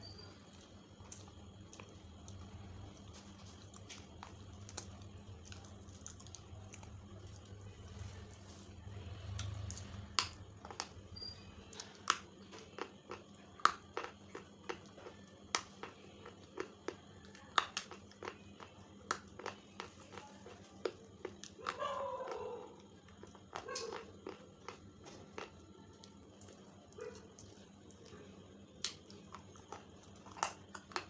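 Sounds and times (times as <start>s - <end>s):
crunching snaps between teeth: 9.3s - 10.9s, 16.6s - 18.4s, 28.8s - 31.0s.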